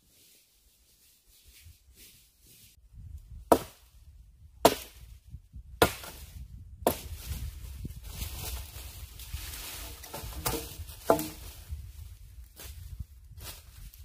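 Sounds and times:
blade chopping wood: 0:03.5 - 0:03.8, 0:04.6 - 0:05.0, 0:05.8 - 0:06.2, 0:09.8 - 0:11.4.

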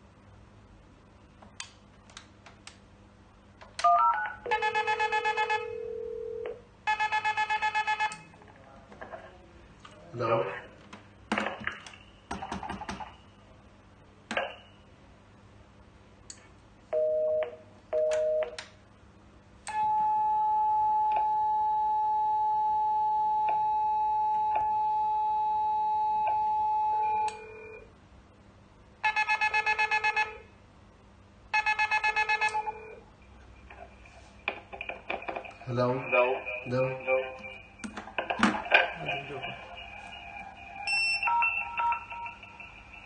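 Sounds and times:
long steady tone: 0:19.7 - 0:28.0, 0:38.7 - 0:43.0
warbling ringtone: 0:39.0 - 0:43.0
short beeps: 0:40.8 - 0:42.4.

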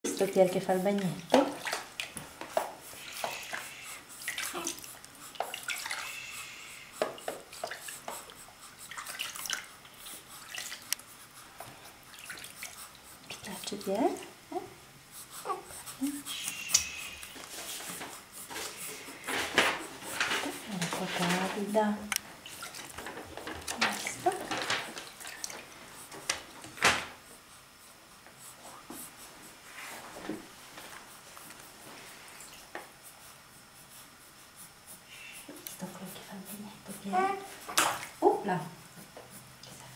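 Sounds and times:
bathwater splashing and trickling: 0:00.8 - 0:02.3, 0:03.0 - 0:06.6, 0:08.8 - 0:10.9, 0:12.1 - 0:13.1, 0:20.7 - 0:25.8.

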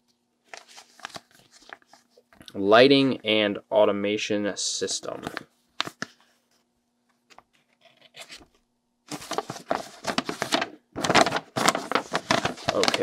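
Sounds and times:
paper rustling and crinkling: 0:00.5 - 0:02.3, 0:07.8 - 0:13.0.

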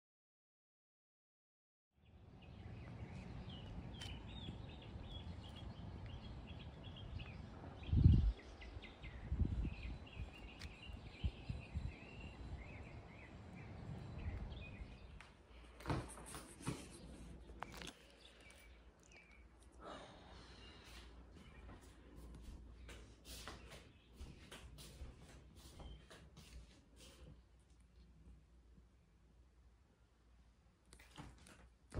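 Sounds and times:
small birds chirping: 0:02.0 - 0:28.2.

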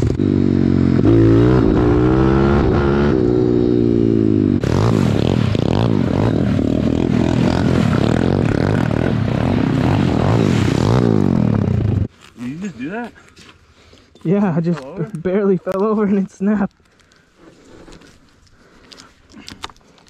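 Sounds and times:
pit bike engines revving: 0:00.0 - 0:13.1.

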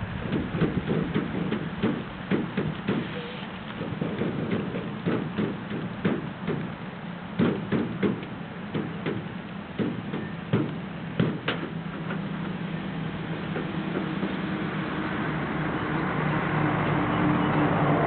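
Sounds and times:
low engine hum: 0:00.0 - 0:18.0
crates knocking and clacking: 0:00.2 - 0:06.8, 0:07.4 - 0:14.7.

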